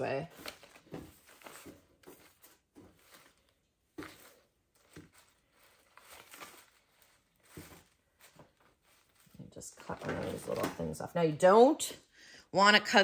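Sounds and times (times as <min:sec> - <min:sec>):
branches rustling: 0:04.0 - 0:09.4.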